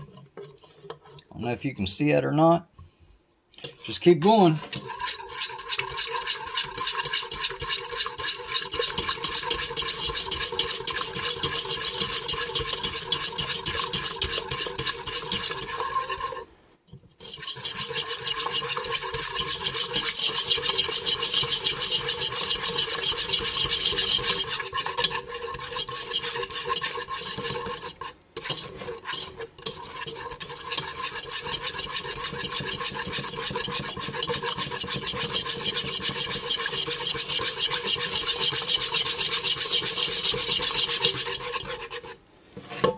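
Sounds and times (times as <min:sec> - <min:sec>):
wire whisk scraping a pot: 0:00.0 - 0:01.3, 0:03.6 - 0:42.9.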